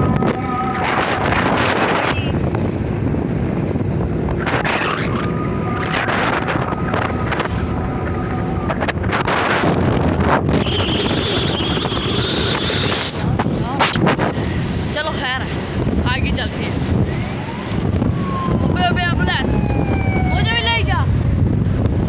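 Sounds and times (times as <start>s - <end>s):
vehicle and road rumble: 0.0s - 22.0s
wind buffeting microphone: 0.0s - 22.0s
higher tone: 4.4s - 9.9s.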